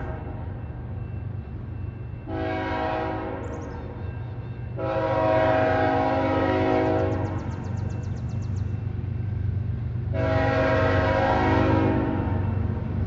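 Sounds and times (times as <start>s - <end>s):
locomotive air horn: 2.3s - 3.5s, 4.8s - 7.4s, 10.1s - 12.5s.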